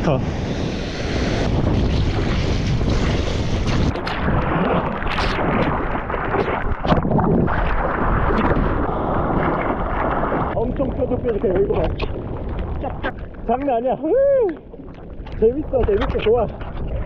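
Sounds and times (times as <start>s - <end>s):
water splashes: 0.0s - 17.0s
wind buffeting microphone: 0.0s - 17.0s
sea water sloshing around board: 1.6s - 13.8s.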